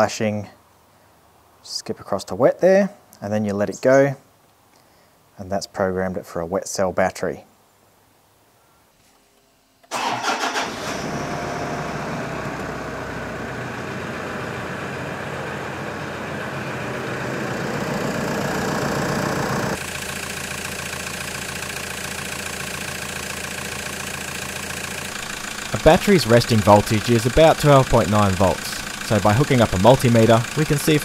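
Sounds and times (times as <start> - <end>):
car engine cranking and starting: 9.9 - 31.0
car engine idling: 9.9 - 31.0.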